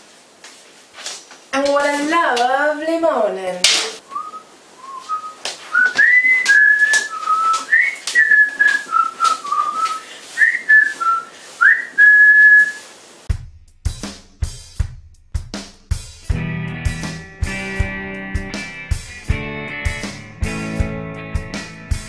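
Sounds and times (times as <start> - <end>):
person whistling a tune: 4.1 - 12.8
drum beat: 13.3 - 16.4.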